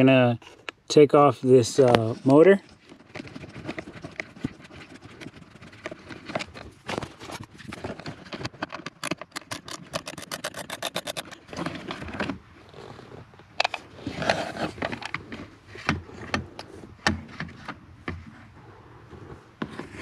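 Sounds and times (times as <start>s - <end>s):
plastic scraping and rustling: 1.5s - 18.5s, 19.1s - 20.0s
rapid run of clicks: 7.9s - 11.5s.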